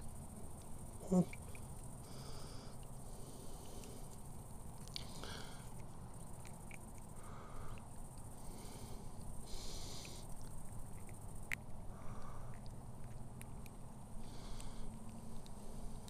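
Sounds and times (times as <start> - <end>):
small clicks and rustles: 2.7 - 8.4, 12.5 - 13.9.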